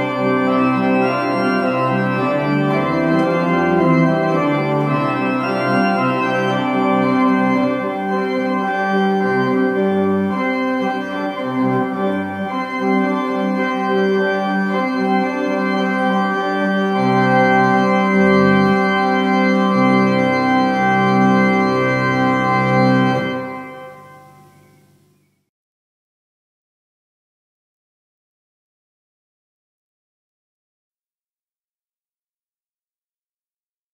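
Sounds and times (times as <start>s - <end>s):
pipe organ playing: 0.0s - 25.2s.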